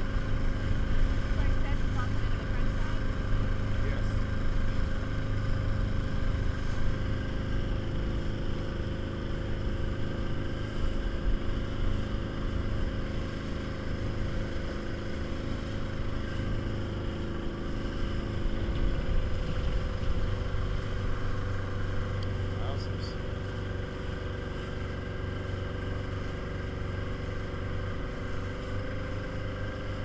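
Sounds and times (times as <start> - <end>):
outboard motor running: 0.0 - 30.0.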